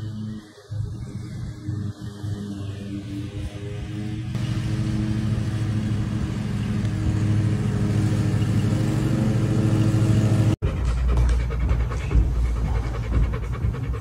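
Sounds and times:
lawn mower engine running: 4.4s - 10.6s.

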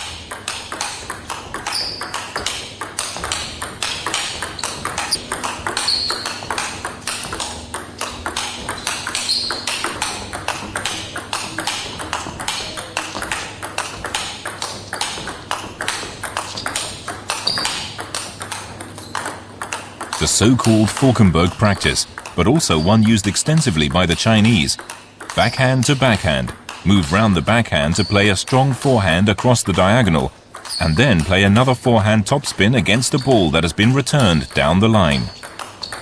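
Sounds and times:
table tennis ball clicking: 0.0s - 27.3s, 27.9s - 31.6s, 33.0s - 36.0s
shoe squeaks: 1.6s - 2.1s, 4.6s - 6.5s, 8.7s - 9.8s, 17.4s - 18.0s, 30.7s - 31.2s, 34.3s - 36.0s.

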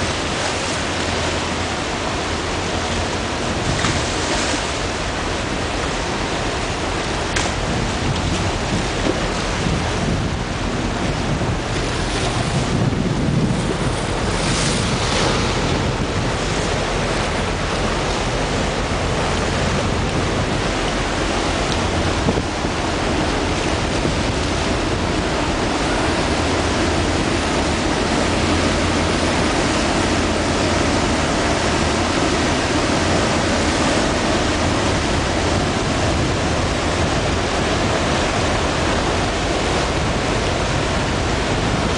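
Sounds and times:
rush of churned water: 0.0s - 41.9s
wind on microphone: 0.0s - 41.9s.

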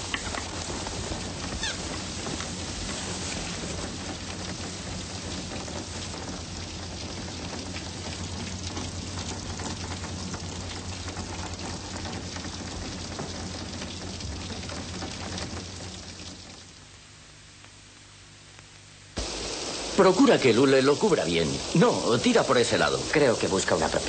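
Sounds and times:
raindrops ticking: 0.0s - 17.8s, 18.6s - 24.0s
steady rain hiss: 0.0s - 24.0s
steady low hum: 17.0s - 24.0s.

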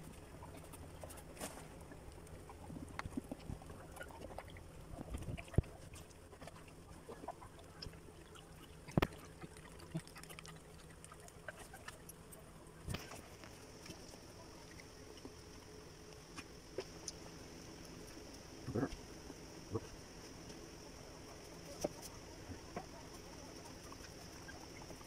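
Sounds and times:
small clicks and rustles: 0.0s - 19.2s, 19.8s - 25.0s.

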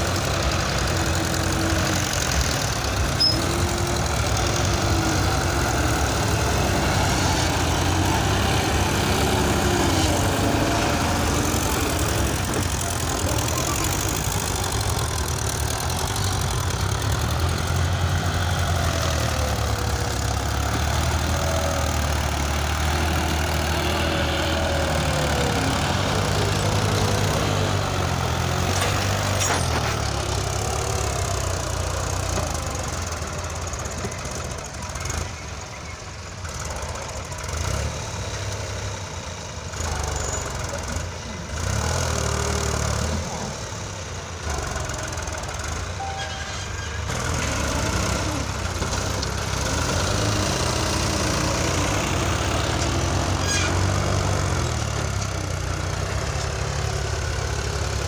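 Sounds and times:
tractor engines running: 0.0s - 58.0s.

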